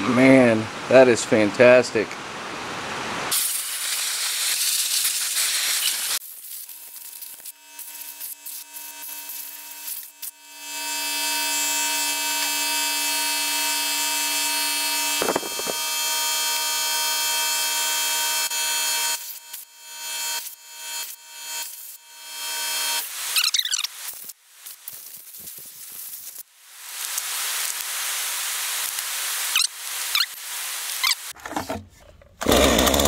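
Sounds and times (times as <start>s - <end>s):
air hose hissing: 3.3s - 10.3s.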